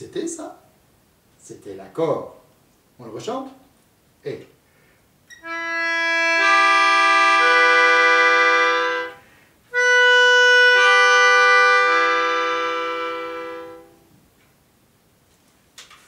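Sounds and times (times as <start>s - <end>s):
melodica chord: 5.4s - 14.1s.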